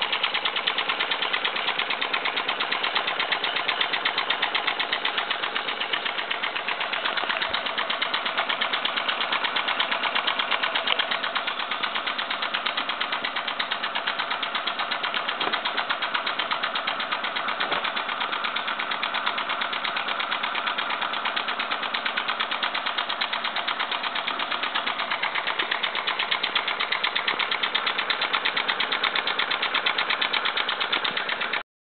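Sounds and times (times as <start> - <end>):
light mechanical rattle: 0.0 - 31.6
toy steam engine chuffing: 0.0 - 31.6.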